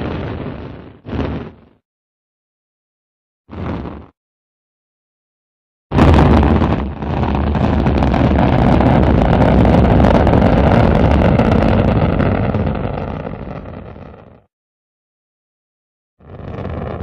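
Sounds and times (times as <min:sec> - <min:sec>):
rocket engine rumble: 0:05.9 - 0:14.4, 0:16.2 - 0:17.0.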